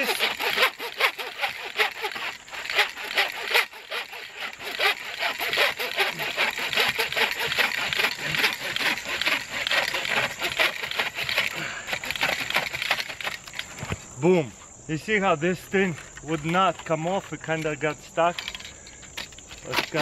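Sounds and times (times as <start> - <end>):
hand saw cutting log: 0.0 - 13.6, 19.6 - 20.0.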